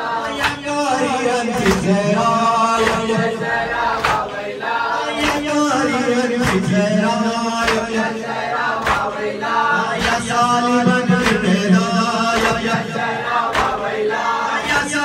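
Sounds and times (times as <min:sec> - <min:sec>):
men chanting together: 0:00.0 - 0:15.0
chest-beating slaps: 0:04.0 - 0:04.3, 0:06.4 - 0:06.7, 0:07.6 - 0:08.1, 0:08.8 - 0:09.2, 0:10.0 - 0:10.3, 0:11.2 - 0:11.6, 0:12.4 - 0:13.9.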